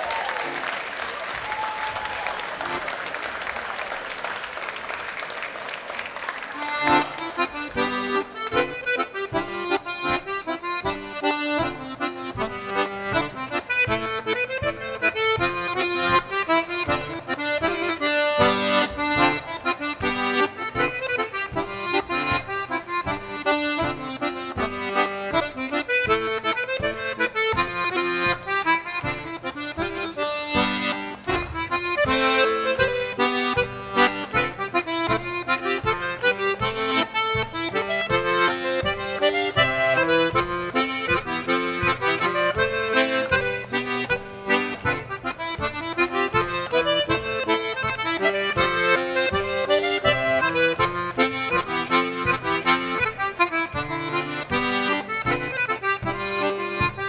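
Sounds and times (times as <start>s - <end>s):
audience applause: 0.0s - 7.8s
button accordion dance tune: 2.4s - 3.6s, 4.2s - 57.0s.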